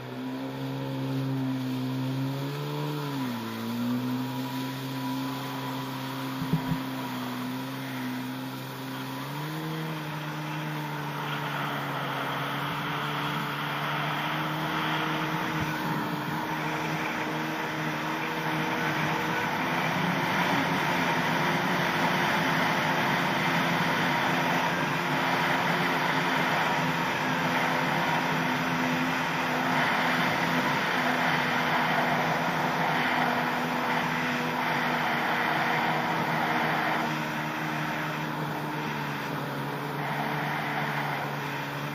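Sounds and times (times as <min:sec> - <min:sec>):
jet ski engine running: 0:00.0 - 0:41.9
water spray rushing: 0:03.2 - 0:41.9.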